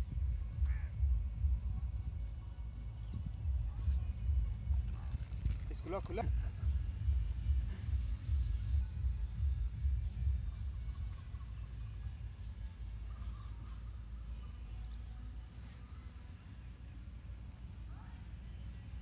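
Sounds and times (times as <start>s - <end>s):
low rumble: 0.0s - 13.4s
insect chirping: 0.0s - 19.0s
faint bird call: 0.4s - 1.4s.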